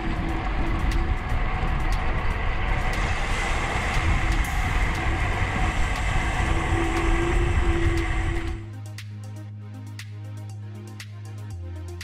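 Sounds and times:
bike tyres rolling on asphalt: 0.0s - 8.6s
wind buffeting camera: 0.0s - 8.6s.

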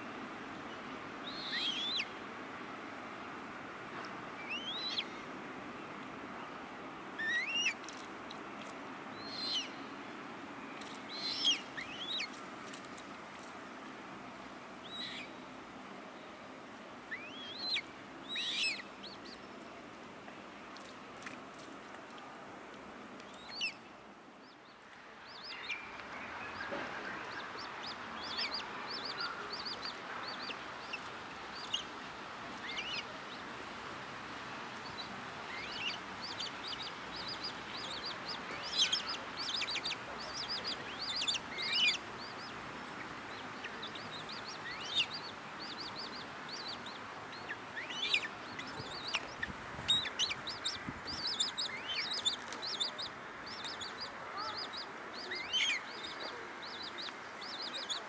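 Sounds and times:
young birds begging calls: 34.8s - 58.0s.

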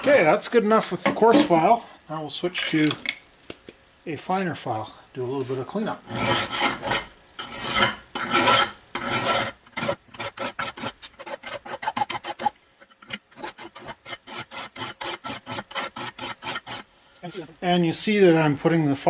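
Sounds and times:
hand file rasping on metal: 6.1s - 16.9s.

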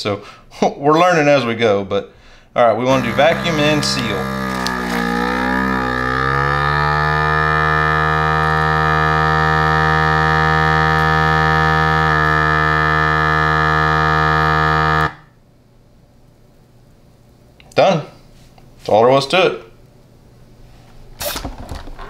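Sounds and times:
vacuum sealer pump humming: 2.8s - 15.2s.

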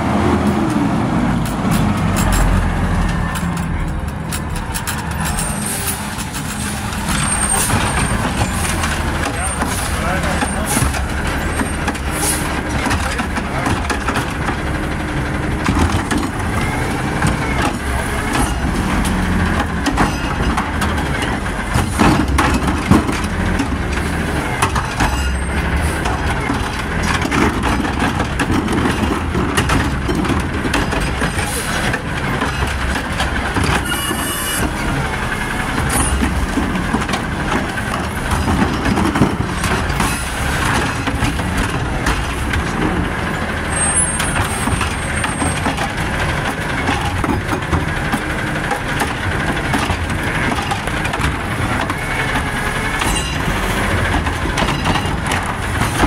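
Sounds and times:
garbage truck engine revving: 0.0s - 56.0s
lifting arm and carts knocking: 0.2s - 56.0s.

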